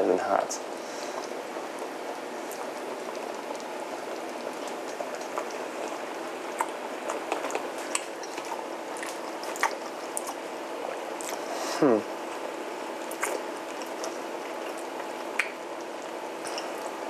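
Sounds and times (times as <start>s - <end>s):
chili bubbling in a pot: 0.0s - 17.0s
small popping bubbles: 13.1s - 16.7s.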